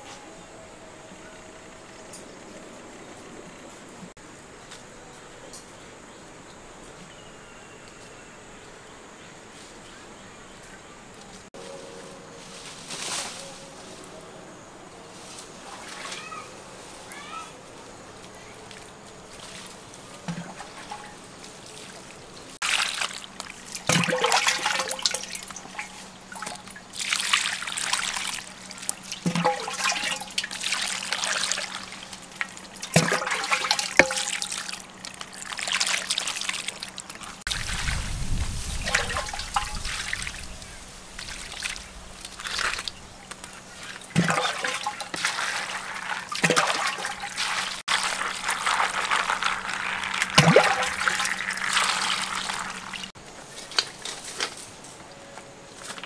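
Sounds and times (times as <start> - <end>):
water splashing through wicker basket: 18.3 - 54.8.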